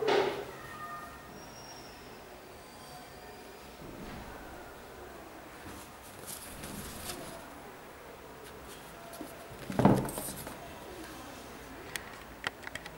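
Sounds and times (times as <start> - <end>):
sneaker handling rustles: 5.6 - 7.5, 8.4 - 10.7.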